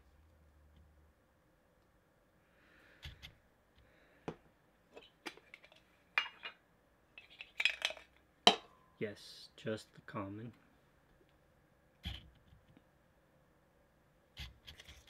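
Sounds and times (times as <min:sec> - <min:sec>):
metal cans clinking: 0:07.2 - 0:08.7.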